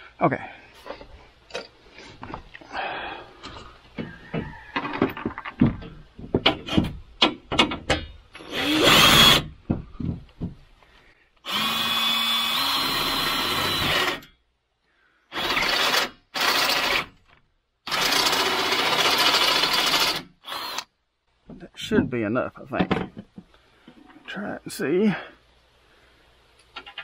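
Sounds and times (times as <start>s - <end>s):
power drill drilling: 8.4s - 9.5s, 11.4s - 14.3s, 15.3s - 17.1s, 17.8s - 20.9s.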